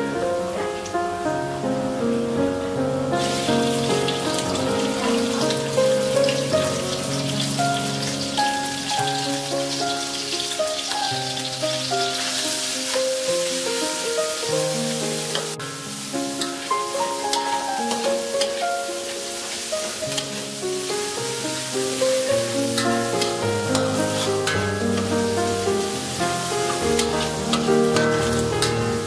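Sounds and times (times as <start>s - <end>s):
background music: 0.0s - 29.0s
food sizzling in hot oil: 3.2s - 29.0s
spatula stirring in wok: 25.8s - 29.0s.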